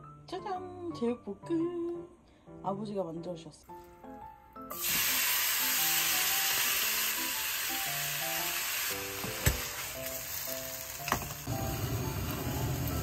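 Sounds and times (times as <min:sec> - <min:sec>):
soft background music: 0:00.0 - 0:13.0
food sizzling in frying pan: 0:04.7 - 0:13.0.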